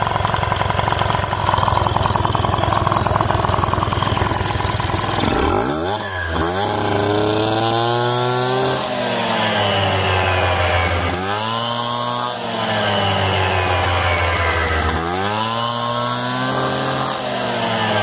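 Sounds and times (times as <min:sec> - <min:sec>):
belt spinning pulleys: 0:00.0 - 0:18.0
scooter engine revving: 0:00.0 - 0:18.0.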